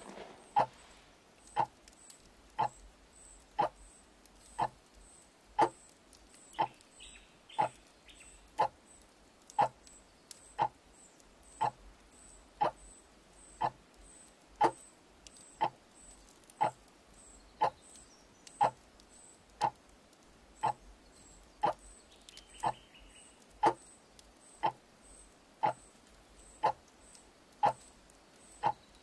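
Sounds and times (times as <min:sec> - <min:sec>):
wall clock ticking: 0:01.5 - 0:01.8, 0:02.6 - 0:02.8, 0:03.6 - 0:03.8, 0:04.6 - 0:04.8, 0:09.5 - 0:09.8, 0:10.6 - 0:10.8, 0:11.6 - 0:11.8, 0:13.6 - 0:13.8, 0:16.6 - 0:16.8, 0:18.6 - 0:18.8, 0:25.6 - 0:25.8.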